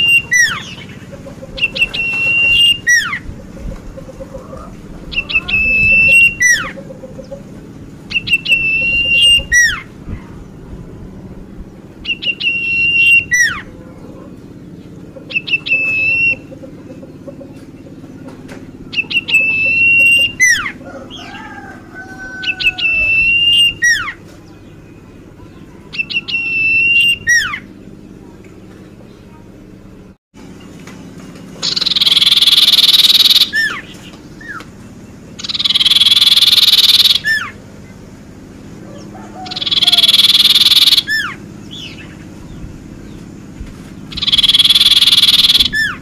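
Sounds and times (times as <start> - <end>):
songbird whistling: 0.0 - 3.4, 4.5 - 7.4, 8.1 - 10.0, 12.0 - 13.8, 14.7 - 17.8, 18.7 - 27.8, 31.6 - 38.0, 38.9 - 43.2, 44.1 - 46.0
soft wavering whistle: 35.5 - 37.5, 39.4 - 41.4, 44.2 - 46.0.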